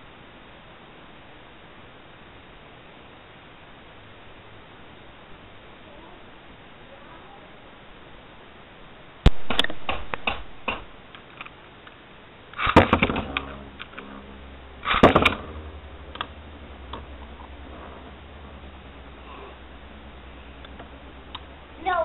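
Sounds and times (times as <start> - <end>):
sharp clack of launch: 9.3 - 10.9, 12.6 - 13.6, 14.8 - 15.5
low whir of spinning tops: 9.5 - 22.0.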